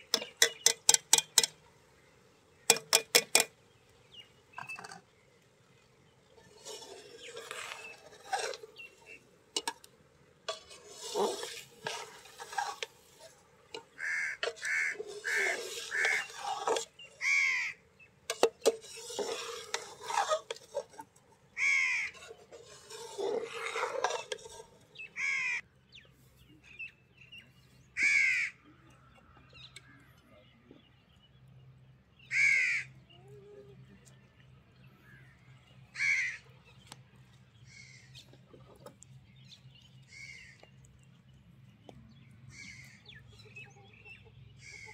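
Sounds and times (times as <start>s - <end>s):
metal ladle scraping rice in pot: 0.0s - 1.6s, 6.2s - 17.6s, 18.2s - 25.1s
bird calling: 11.2s - 18.4s.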